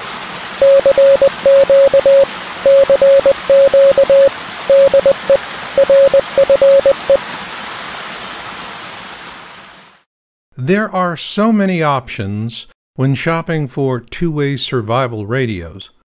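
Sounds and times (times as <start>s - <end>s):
morse code beeps: 0.6s - 7.2s.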